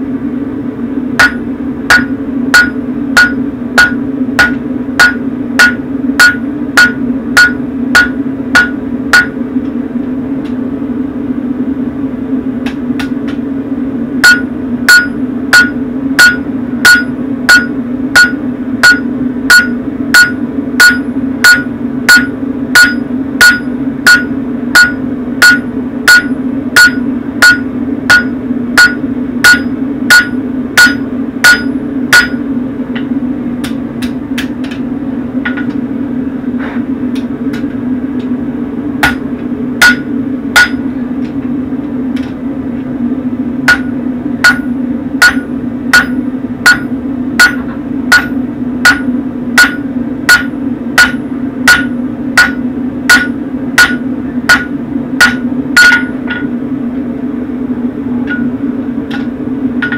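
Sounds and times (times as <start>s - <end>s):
hammer ringing on anvil: 1.2s - 9.4s, 14.2s - 32.4s, 39.8s - 40.9s, 43.7s - 56.5s, 58.2s - 59.9s.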